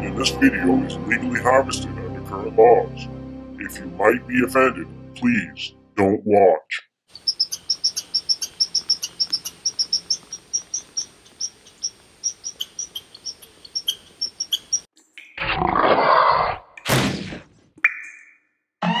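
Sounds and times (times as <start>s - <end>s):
crickets chirping: 7.1s - 14.9s
high-pitched insect trill: 7.2s - 14.9s.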